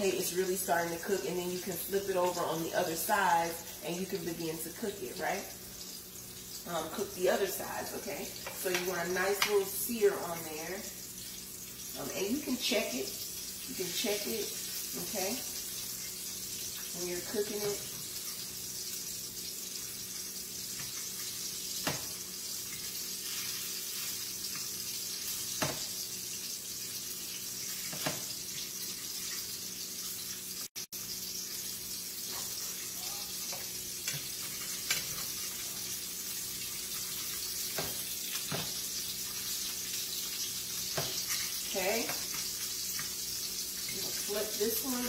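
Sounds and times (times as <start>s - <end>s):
fish sizzling in frying pan: 0.0s - 45.0s.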